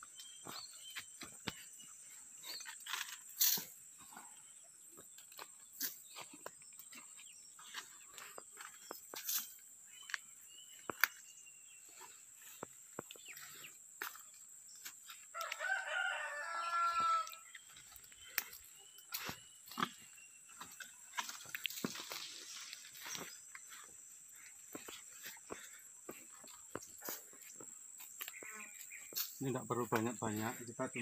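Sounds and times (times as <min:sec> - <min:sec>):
rooster crowing: 0:15.3 - 0:17.5.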